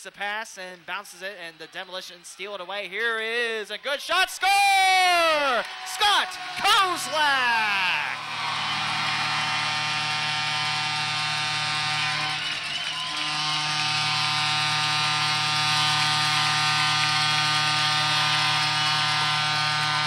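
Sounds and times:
goal horn over loudspeakers: 5.5 - 20.0.

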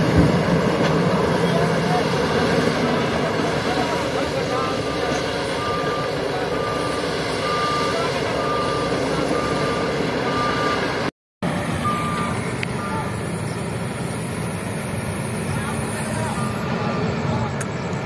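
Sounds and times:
heavy machinery diesel engine: 0.0 - 18.0
reversing alarm beeping: 3.4 - 11.1, 11.7 - 14.2, 15.9 - 18.0.

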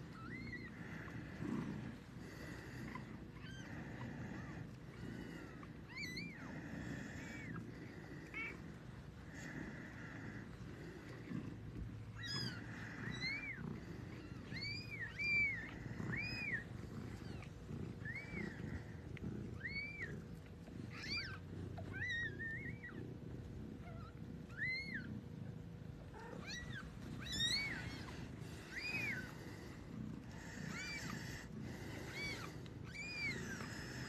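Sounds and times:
soft rustling: 0.0 - 34.0.

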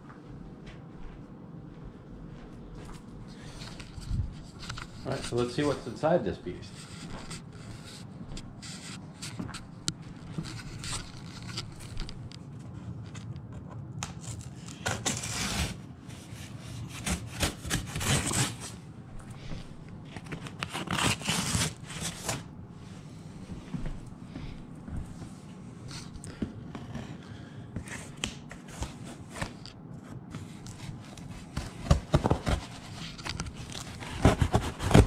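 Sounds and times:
cardboard box scraping and rubbing: 14.2 - 18.8, 20.6 - 22.4, 30.7 - 35.0.

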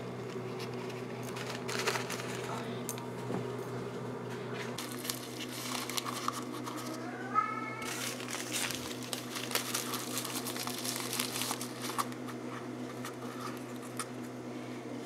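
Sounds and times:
paper tea bag crinkling: 0.2 - 2.6, 4.8 - 7.1, 7.8 - 14.1.

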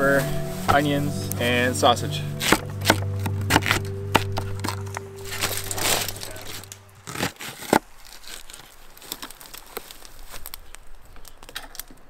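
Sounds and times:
aluminium foil crinkling: 2.8 - 12.0.

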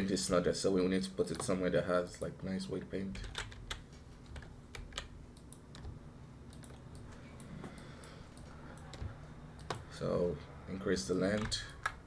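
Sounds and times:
faint low hum: 0.0 - 12.0
keyboard and mouse clicks: 3.2 - 9.9, 11.1 - 12.0.

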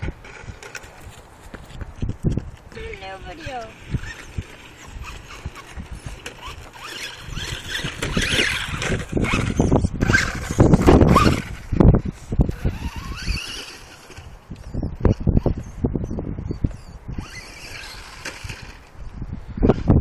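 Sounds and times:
tyres and chassis rattling: 0.0 - 14.3
toy truck electric motor whine: 3.3 - 15.8, 16.6 - 19.0.

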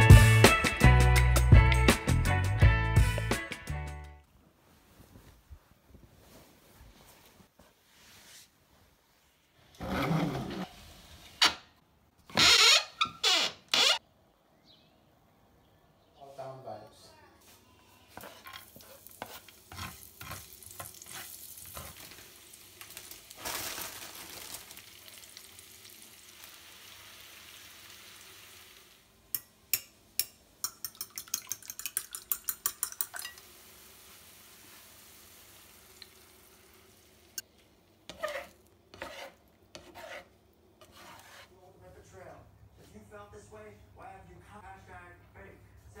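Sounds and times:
garlic sizzling in hot oil: 18.2 - 29.2, 32.9 - 37.4
fork beating eggs in ceramic bowl: 29.4 - 33.4.

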